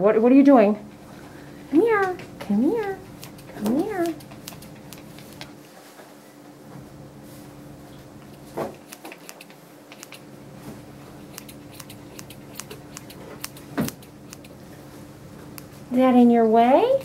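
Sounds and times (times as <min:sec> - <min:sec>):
low clipper hum: 0:00.7 - 0:05.6, 0:07.8 - 0:17.0
grooming clippers clicks and snips: 0:01.9 - 0:05.6, 0:08.2 - 0:10.3, 0:11.2 - 0:14.6, 0:15.5 - 0:15.7.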